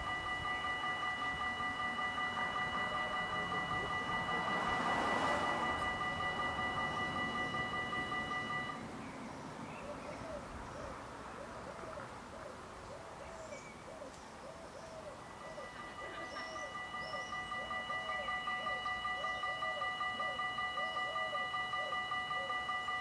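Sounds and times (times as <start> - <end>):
level crossing warning bells: 0.0 - 9.0, 14.9 - 23.0
bird cooing: 9.7 - 23.0.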